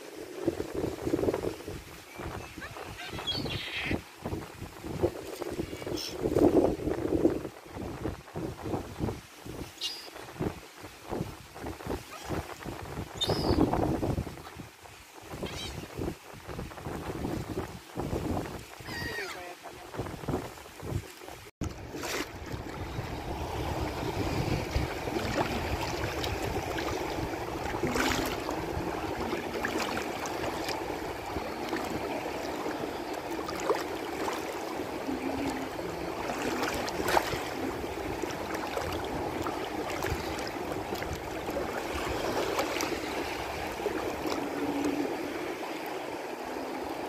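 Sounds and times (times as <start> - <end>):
water splashing and lapping: 0.0 - 47.0
wind rumbling on microphone: 0.0 - 47.0
water slaps: 24.4 - 45.0.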